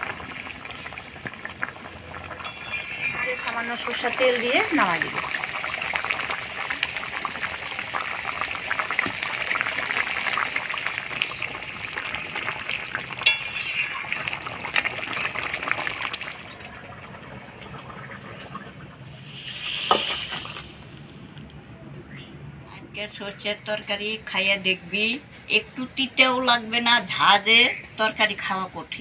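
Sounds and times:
curry bubbling and sizzling: 0.0 - 21.6
metal spatula clinking on pan: 2.4 - 3.6, 13.2 - 13.7.

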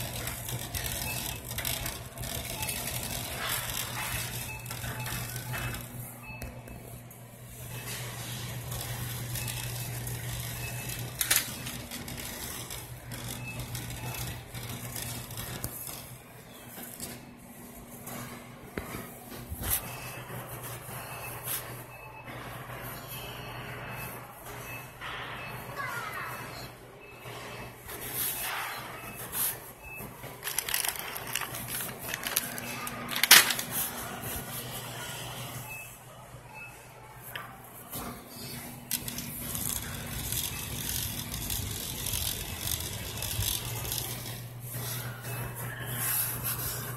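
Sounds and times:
shopping cart rattling: 0.0 - 5.9, 7.9 - 15.6, 30.2 - 34.6, 38.9 - 45.2
refrigeration hum: 0.0 - 25.3, 26.7 - 46.9
steady low hum: 29.6 - 46.9.

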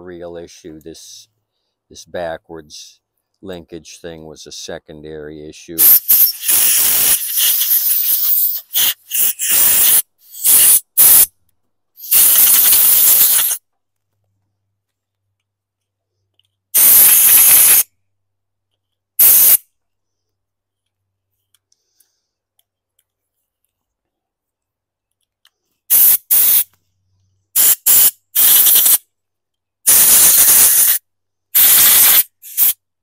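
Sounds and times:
compressed air blow gun blasts: 5.8 - 11.3, 12.0 - 13.6, 16.7 - 17.9, 19.2 - 19.6, 25.9 - 26.7, 27.5 - 29.0, 29.8 - 31.0, 31.6 - 32.8.

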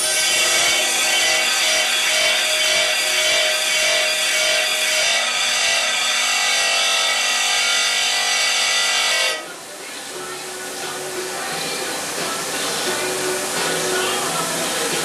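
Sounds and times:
metal comb grinding on disc: 0.0 - 9.5.

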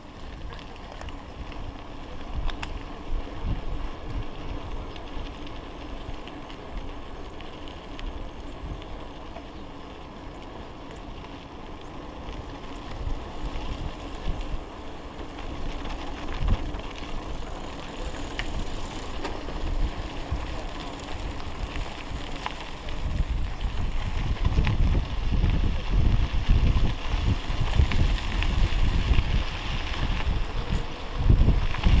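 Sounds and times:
wind buffeting microphone: 0.0 - 7.1, 8.1 - 9.0, 11.8 - 32.0
bike tyres rumbling on gravel: 0.0 - 32.0
small rattles and clicks: 0.2 - 25.6.

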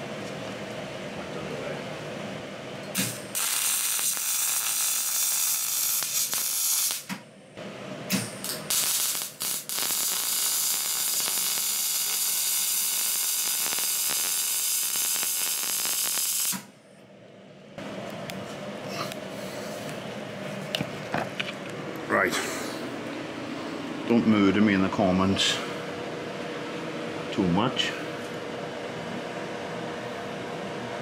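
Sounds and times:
welder arc crackling and hissing: 3.0 - 7.2, 8.1 - 16.7.

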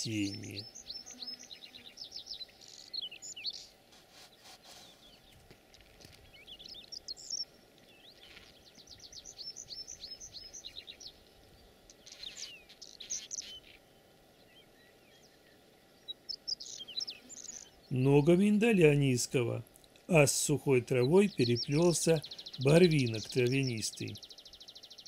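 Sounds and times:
faint background hiss: 0.0 - 25.0
songbirds chirping and trilling: 0.0 - 25.0.

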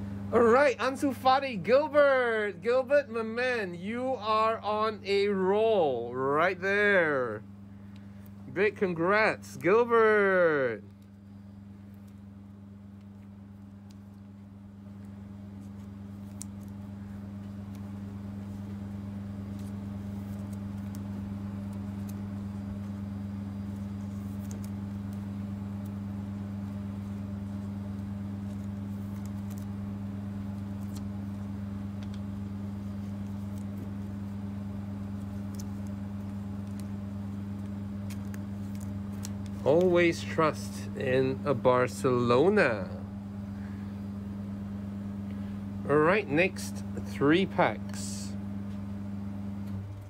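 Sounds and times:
electrical hum with drone: 0.0 - 50.0
trading cards being handled: 7.8 - 42.9.

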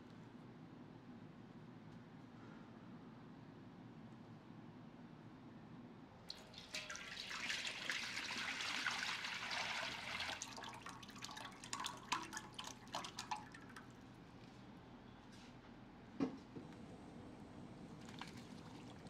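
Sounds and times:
liquid pouring into wok: 6.3 - 13.9.

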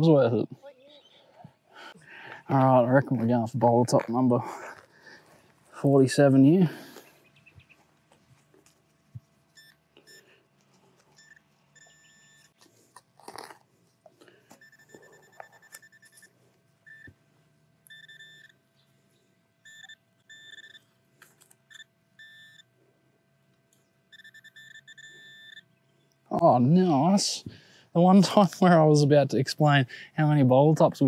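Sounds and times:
pinpointer beeping: 9.5 - 10.3, 11.1 - 12.6, 14.6 - 17.2, 17.9 - 18.6, 19.6 - 20.9, 21.7 - 22.7, 24.1 - 25.7.

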